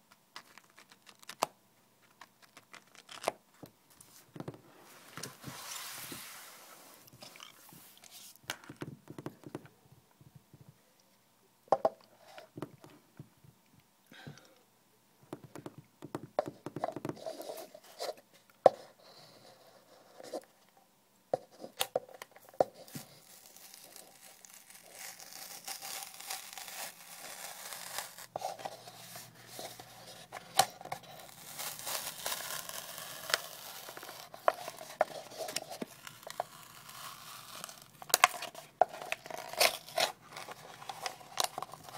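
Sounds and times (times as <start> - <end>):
paper cup tearing and crinkling: 0.4 - 3.4, 22.8 - 41.9.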